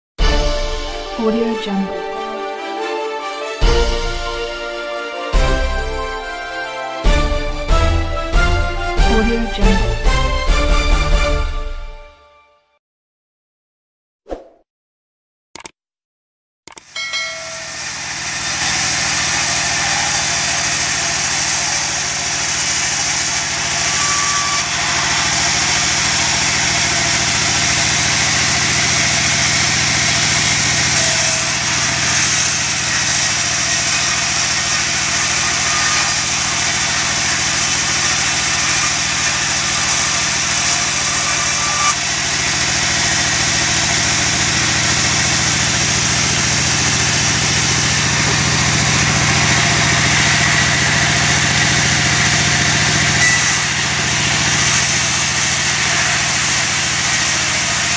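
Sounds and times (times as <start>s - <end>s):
band saw drone and hiss: 16.9s - 57.9s.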